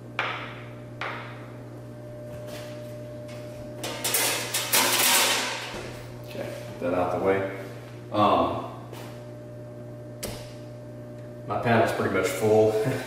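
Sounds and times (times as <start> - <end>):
metal cover scraping clatter: 3.9 - 5.7.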